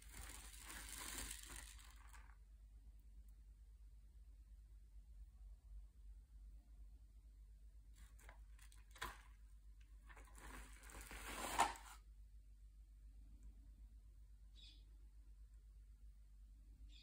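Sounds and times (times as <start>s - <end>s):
scraping rustle through granules: 0.0s - 2.2s, 10.3s - 11.9s.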